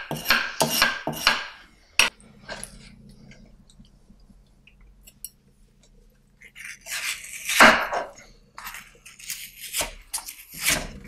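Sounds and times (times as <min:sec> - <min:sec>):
metal spoon scraping leaf: 0:06.4 - 0:07.6.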